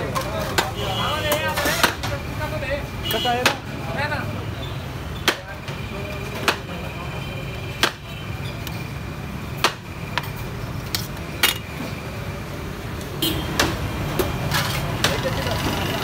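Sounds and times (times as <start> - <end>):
metal utensils clinking on pots: 11.4 - 11.7.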